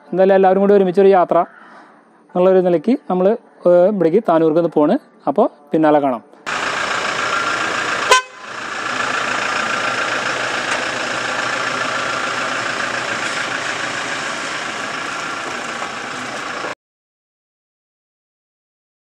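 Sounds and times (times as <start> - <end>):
car engine running: 6.5 - 16.8.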